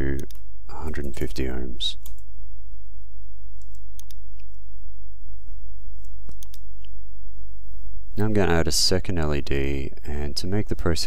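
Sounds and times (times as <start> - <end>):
steady low hum: 0.0 - 11.0
mouse and keyboard clicks: 3.6 - 4.6, 6.2 - 6.9.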